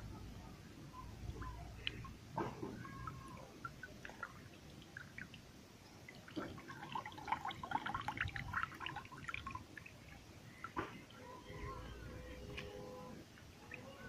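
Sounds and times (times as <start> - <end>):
water dripping and splashing: 1.2 - 12.7.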